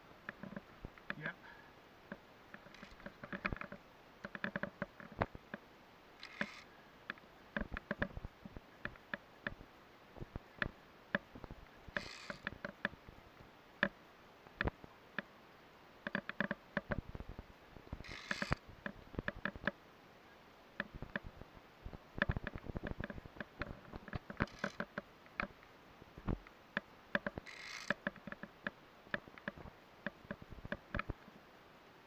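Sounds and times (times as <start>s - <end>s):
metal climbing gear clicking: 2.5s - 5.1s, 6.2s - 6.7s, 12.0s - 12.6s, 18.0s - 18.6s, 24.3s - 25.0s, 27.2s - 28.4s.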